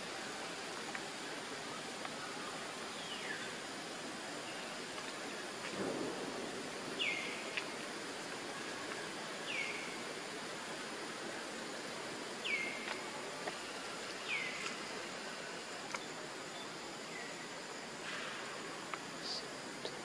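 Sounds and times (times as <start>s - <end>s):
steady outdoor hiss: 0.0s - 20.0s.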